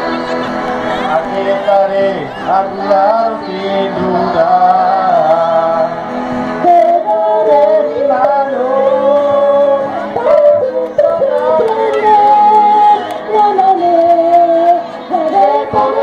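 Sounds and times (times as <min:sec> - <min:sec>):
mixed choir singing: 0:00.0 - 0:16.0.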